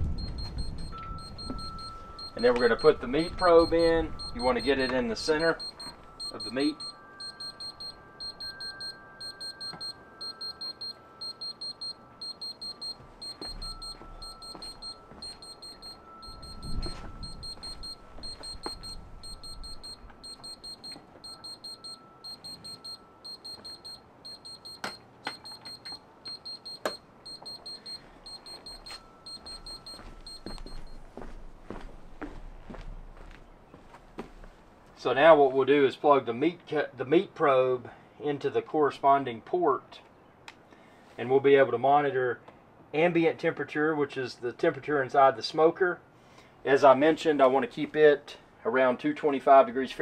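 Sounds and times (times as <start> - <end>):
electronic alarm beeping: 0.0 - 31.1.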